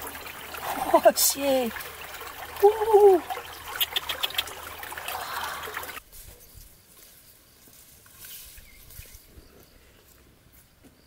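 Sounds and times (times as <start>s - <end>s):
water trickling and splashing: 0.0s - 6.0s
faint insect chirping: 5.2s - 11.0s.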